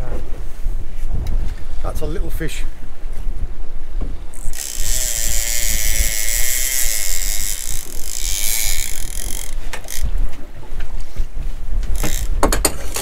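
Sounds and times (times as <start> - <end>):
low wind rumble: 0.0 - 13.0
fishing reel ratchet clicking: 4.3 - 10.2, 11.9 - 13.0.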